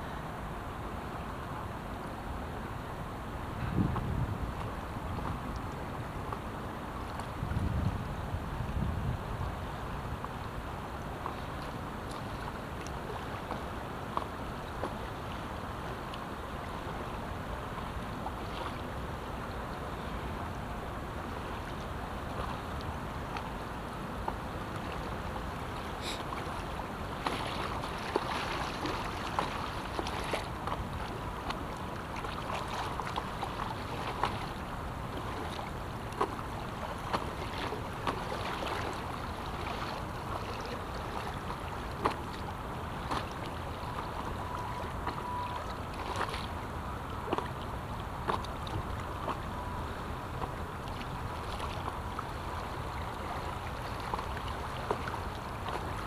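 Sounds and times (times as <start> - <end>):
river water rushing: 0.0 - 56.0
water slapping against paddleboard: 3.5 - 8.0, 21.3 - 56.0.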